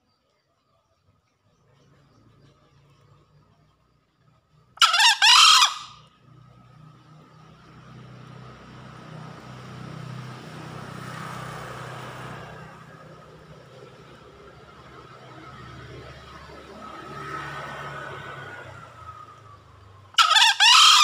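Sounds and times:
junglefowl crowing: 4.8s - 6.0s, 20.2s - 21.0s.

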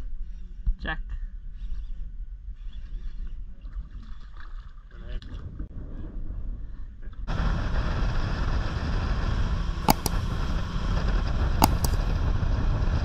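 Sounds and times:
mouse click sound effects: 9.9s - 10.3s, 11.6s - 12.0s.

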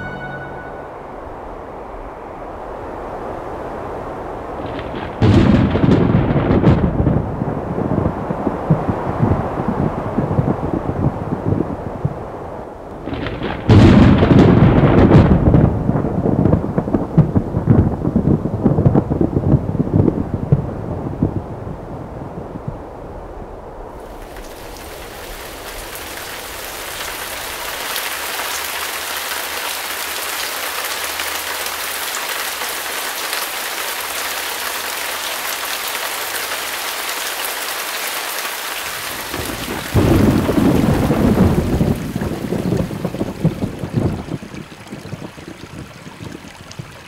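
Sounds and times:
thunder rumble: 0.0s - 31.5s, 38.9s - 47.0s
rain falling steadily: 0.0s - 47.0s.

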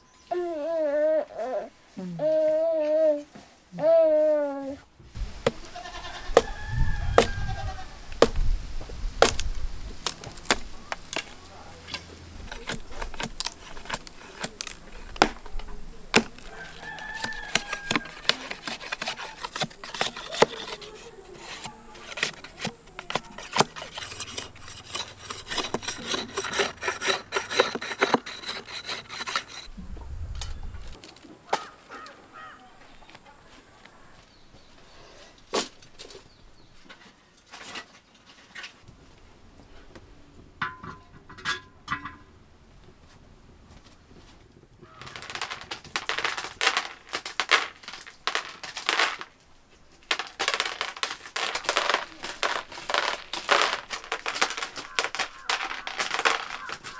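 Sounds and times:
chickens calling: 5.2s - 8.7s, 9.3s - 29.7s, 51.4s - 56.9s
knife chopping bamboo: 8.2s - 8.4s, 9.2s - 11.4s, 12.4s - 20.8s.

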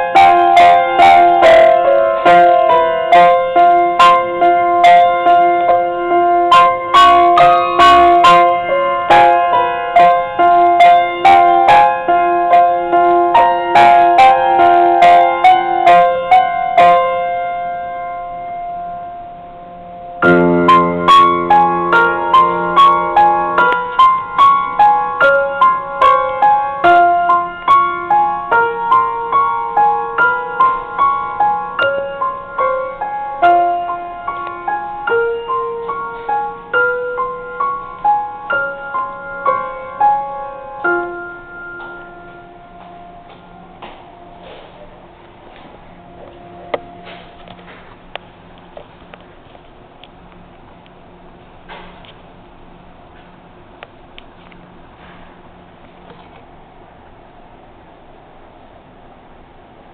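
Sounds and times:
grand piano playing: 0.0s - 47.6s.

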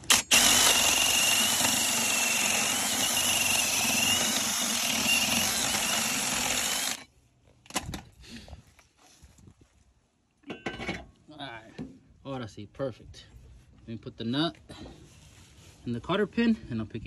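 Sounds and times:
power drill grinding with high whine: 0.0s - 7.1s.

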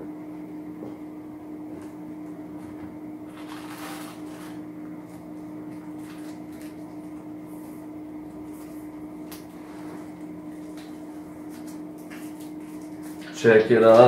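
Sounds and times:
steady low hum: 0.0s - 14.0s
packaging rustling: 3.3s - 4.6s, 5.9s - 6.8s.

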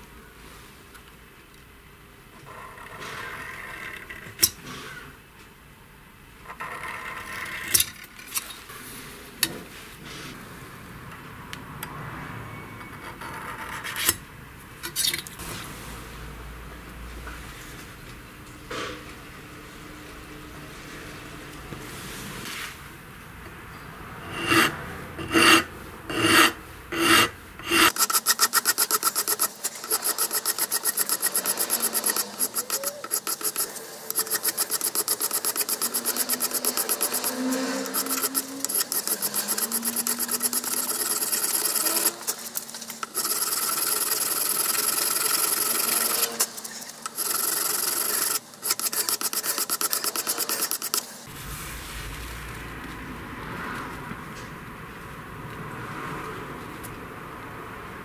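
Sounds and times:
hand file scraping metal: 24.2s - 51.1s.

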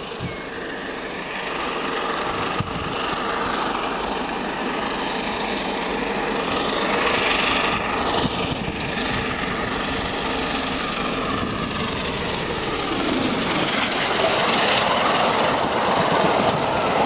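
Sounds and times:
steam train rushing: 6.3s - 17.0s.

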